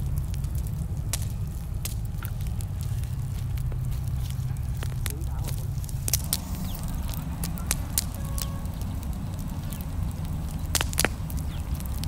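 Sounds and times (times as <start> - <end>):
burning logs popping: 0.0 - 12.0
campfire crackling: 0.0 - 12.0
steady low rumble: 0.0 - 12.0.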